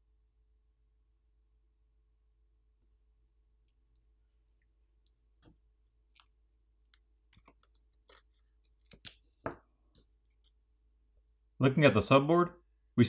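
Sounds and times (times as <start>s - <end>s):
small parts clicking and tapping: 5.4s - 10.6s.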